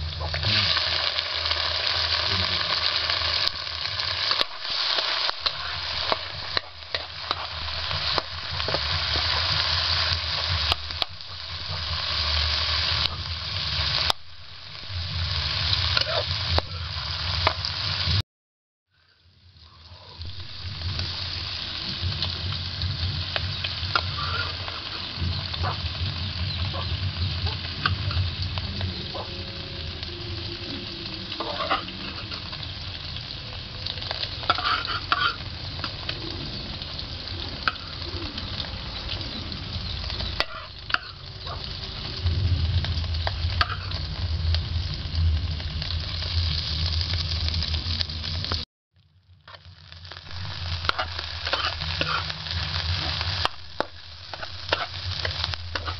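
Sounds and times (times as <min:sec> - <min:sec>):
shrimp sizzling in hot oil: 0:00.0 - 0:18.2, 0:18.9 - 0:55.9
metal spoon scraping a pan: 0:04.0 - 0:11.0, 0:23.9 - 0:25.0, 0:30.8 - 0:32.6, 0:34.4 - 0:36.0, 0:40.2 - 0:41.6, 0:43.5 - 0:44.0, 0:50.4 - 0:55.9.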